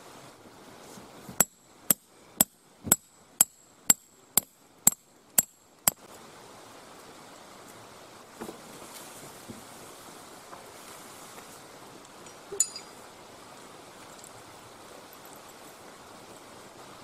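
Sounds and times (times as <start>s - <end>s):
hammer striking tent peg: 1.4s - 5.6s.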